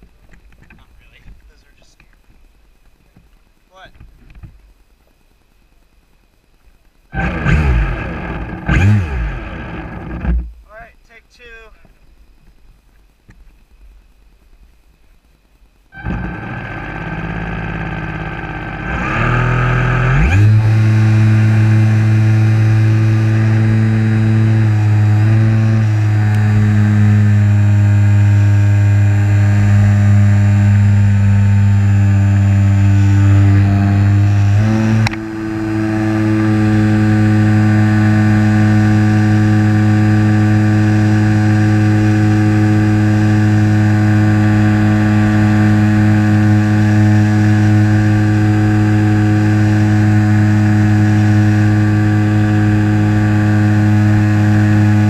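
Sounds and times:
model plane motor whine: 7.2s - 10.4s, 16.0s - 55.0s.

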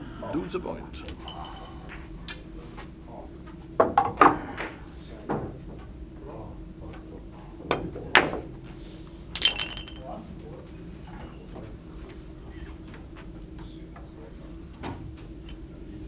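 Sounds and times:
billiard balls clicking: 9.3s - 10.0s.

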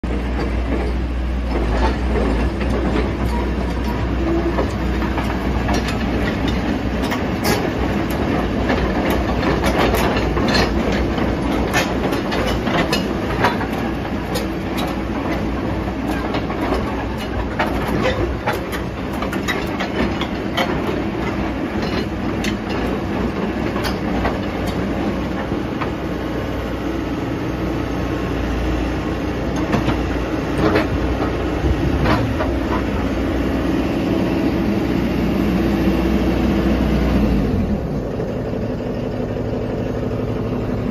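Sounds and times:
excavator engine rumbling: 0.0s - 40.9s
metallic clanks and clicks: 0.4s - 26.0s, 29.5s - 33.1s.

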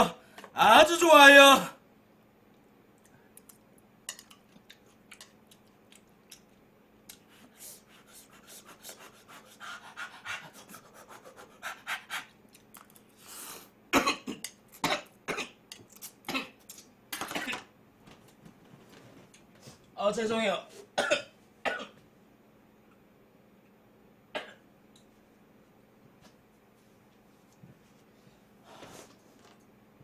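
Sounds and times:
man chewing and slurping noodles: 4.2s - 7.5s
man coughing hard: 13.9s - 15.6s, 21.0s - 22.0s.

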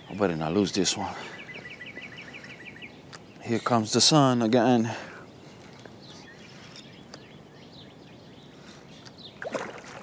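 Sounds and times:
lake water splashing and lapping: 9.3s - 10.0s
fish splashing: 9.4s - 10.0s.

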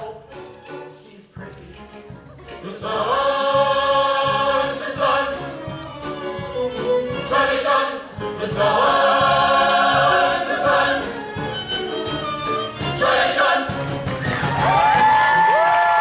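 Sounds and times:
instrumental accompaniment: 0.0s - 15.5s
cast singing in chorus: 7.2s - 11.4s.

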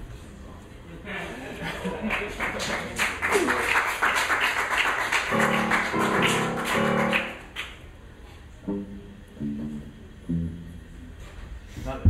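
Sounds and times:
held electric guitar notes: 5.3s - 7.5s, 8.6s - 11.3s.

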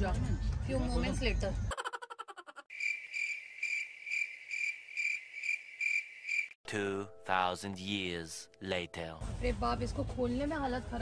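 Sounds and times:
cricket chirp sound effect: 2.7s - 6.6s
man speaking: 6.7s - 9.2s.

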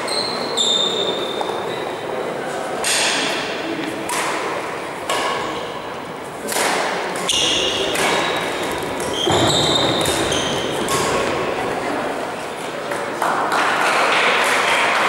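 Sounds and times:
court shoes squeaking: 0.0s - 2.0s, 3.8s - 13.1s
racket striking shuttlecock: 2.8s - 5.6s, 6.4s - 11.6s.

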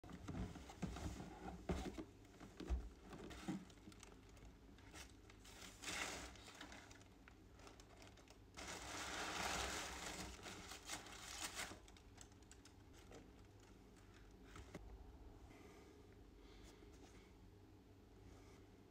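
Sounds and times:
wrapping paper crinkling: 3.5s - 14.3s.

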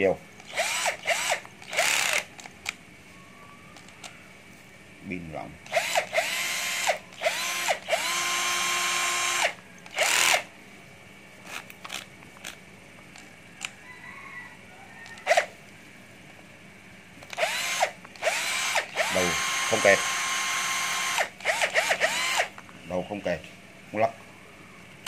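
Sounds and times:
cordless drill motor whine: 0.4s - 2.4s, 5.6s - 10.5s, 15.1s - 15.5s, 17.3s - 22.6s.

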